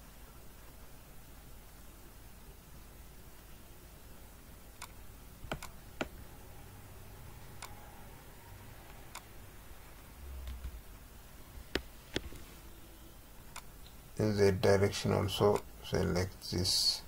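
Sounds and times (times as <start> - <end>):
faint room hiss: 0.0 - 17.0
mouse and keyboard clicks: 5.5 - 6.2.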